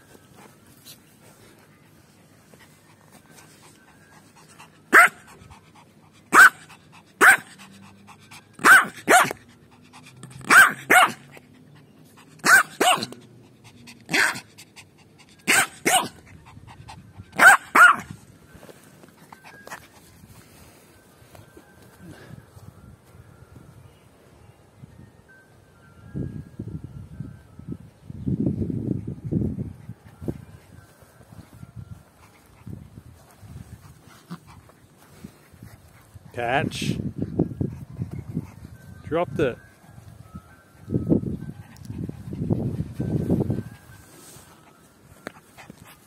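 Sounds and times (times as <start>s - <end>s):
puppy barking: 4.9s - 5.3s, 6.3s - 7.6s, 8.6s - 9.4s, 10.4s - 11.3s, 12.4s - 13.2s, 14.1s - 14.5s, 15.4s - 16.2s, 17.4s - 18.1s.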